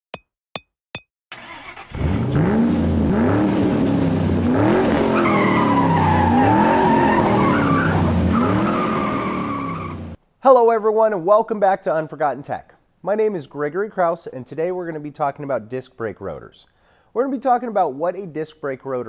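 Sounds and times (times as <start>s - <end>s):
car engine revving: 1.4s - 10.2s
tires squealing: 4.4s - 10.2s.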